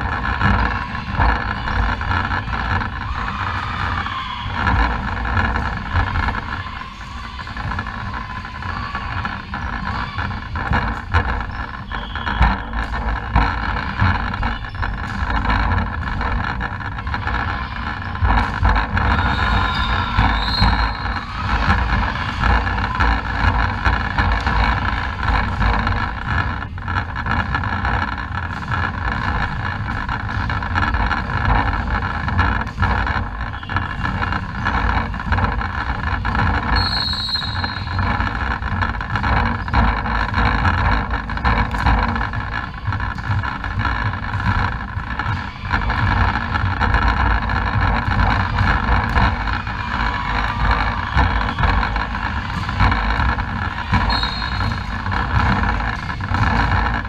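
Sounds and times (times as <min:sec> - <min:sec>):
rumbling hall background noise: 0:00.0 - 0:57.0
shoe squeaks: 0:08.8 - 0:17.6, 0:18.2 - 0:22.4, 0:33.4 - 0:35.1, 0:36.4 - 0:38.5, 0:53.9 - 0:55.8.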